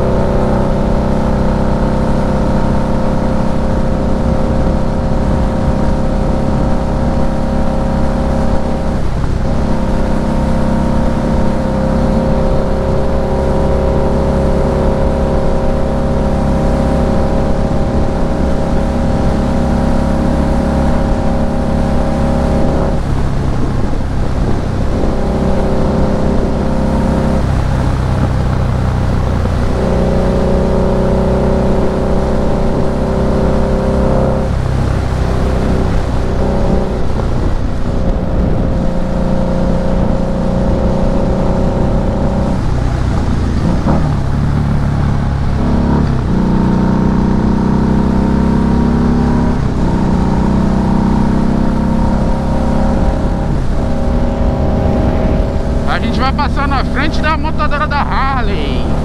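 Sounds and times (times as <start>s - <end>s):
constant rushing noise: 0.0s - 47.7s, 49.5s - 59.0s
motorcycle engine running: 49.5s - 59.0s.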